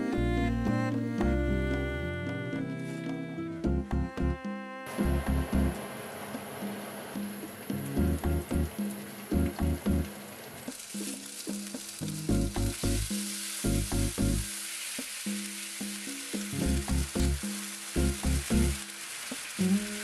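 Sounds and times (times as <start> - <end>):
plucked background music: 0.0 - 5.8, 7.8 - 10.2, 12.0 - 14.5, 16.5 - 18.8
tofu sizzling in a frying pan: 10.7 - 20.0.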